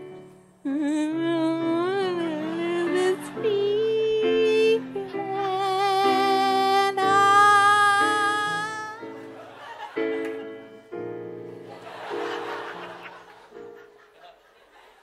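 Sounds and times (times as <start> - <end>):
electric keyboard chords: 0.0 - 14.2
woman singing with vibrato: 0.7 - 9.1
audience noise: 9.1 - 15.0.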